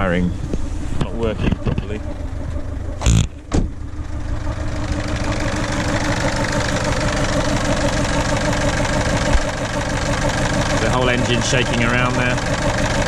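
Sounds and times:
diesel engine idling roughly: 0.0 - 13.0
loud thump: 3.0 - 3.8.

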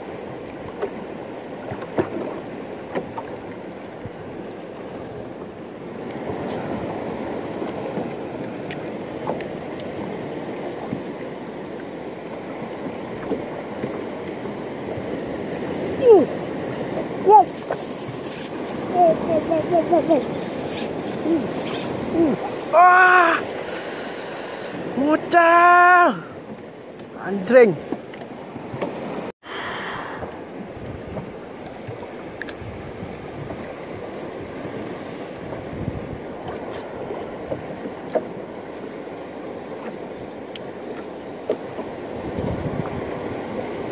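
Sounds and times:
choppy waves washing: 0.0 - 43.9
sea water lapping around boat: 0.0 - 43.9
wind on microphone: 13.2 - 23.6, 29.5 - 37.9, 42.0 - 43.9.

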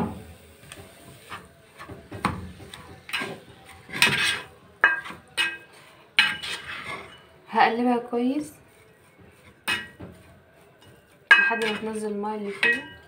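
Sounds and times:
spoon scraping nonstick pot: 2.6 - 7.4, 8.6 - 13.0.

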